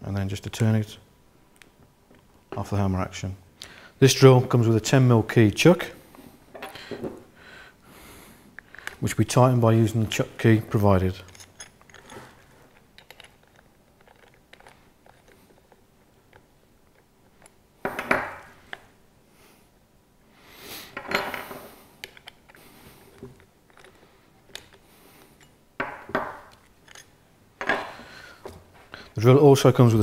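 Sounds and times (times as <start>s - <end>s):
tools knocking on wooden workbench: 25.8s - 26.4s.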